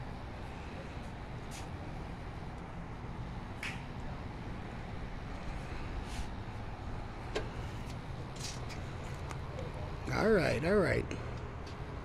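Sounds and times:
low outdoor rumble: 0.0 - 12.0.

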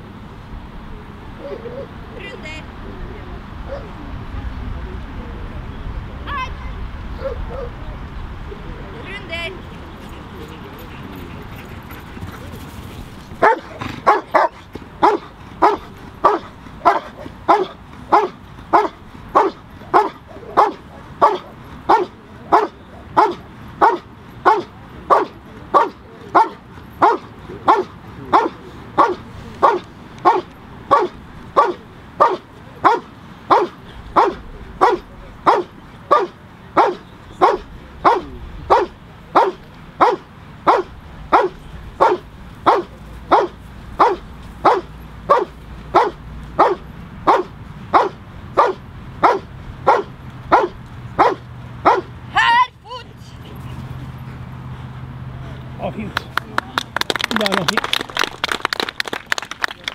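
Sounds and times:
dog barking rhythmically: 13.4 - 52.6.

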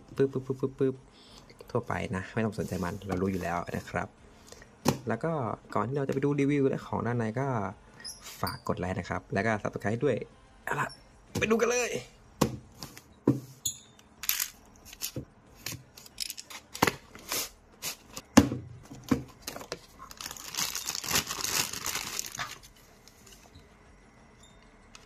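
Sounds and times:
plastic wrapping crinkling and tearing: 19.4 - 23.3.

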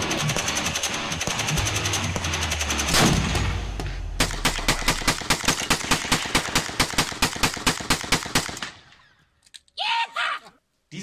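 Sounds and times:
shotgun firing rapidly: 0.0 - 3.6, 4.2 - 8.8
music: 0.0 - 4.0
loud hit: 2.9 - 4.9.

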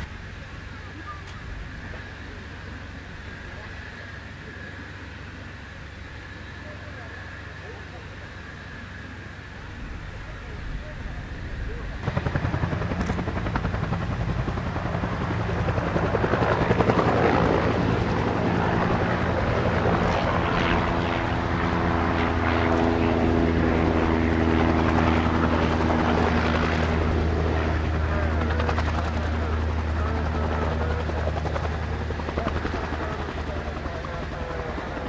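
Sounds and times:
helicopter rotor beating: 9.2 - 35.0
turbine engine running: 9.2 - 35.0.

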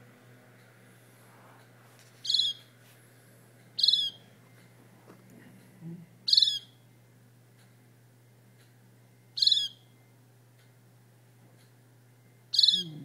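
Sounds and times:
fledgling bird calling: 2.2 - 2.7, 3.8 - 4.3, 6.3 - 6.8, 9.4 - 9.9, 12.5 - 13.0.

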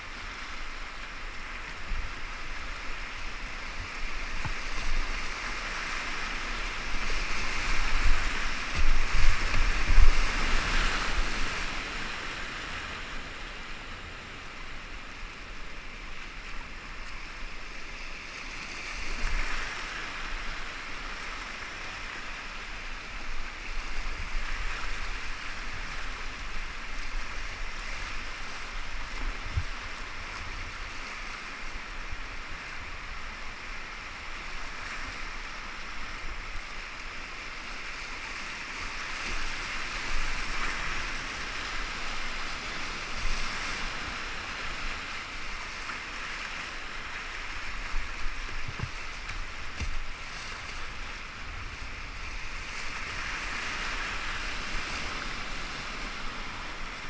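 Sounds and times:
whitewater rushing: 0.0 - 57.0
low thumps on microphone: 48.6 - 49.0.

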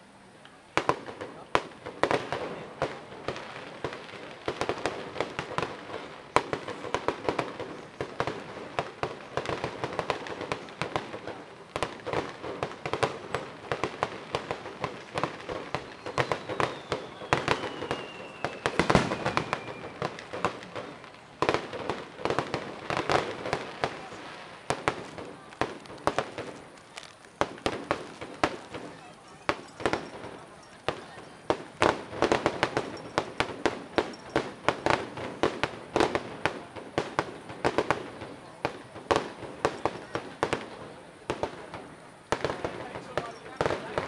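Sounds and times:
fireworks bangs and crackles: 0.0 - 44.0
firework whistle falling in pitch: 15.8 - 20.0.

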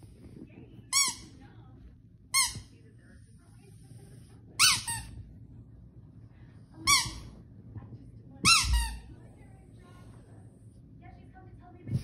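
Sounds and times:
squeaky dog toy squeaking: 4.6 - 5.1, 6.8 - 7.2, 8.4 - 9.0.

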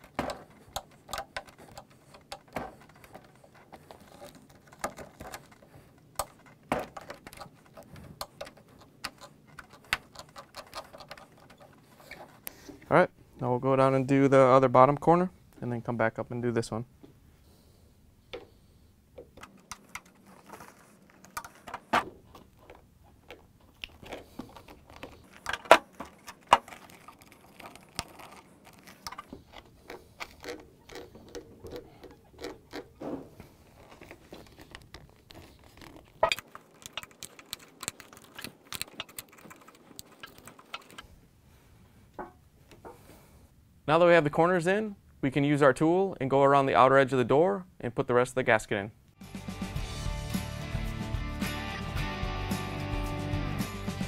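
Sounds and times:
metal tool clicking on plastic: 0.0 - 11.8.

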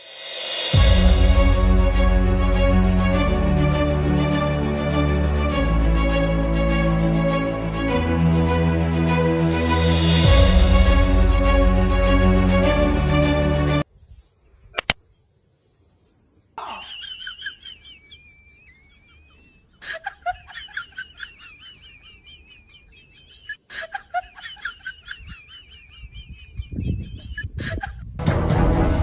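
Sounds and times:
music: 0.0 - 13.8, 28.2 - 29.0
single click: 14.7 - 15.0
animal chattering calls: 16.6 - 18.2.

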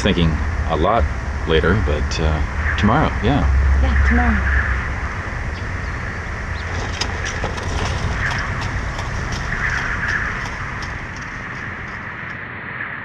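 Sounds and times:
even hiss: 0.0 - 3.5
wind rumbling on microphone: 0.0 - 13.0.

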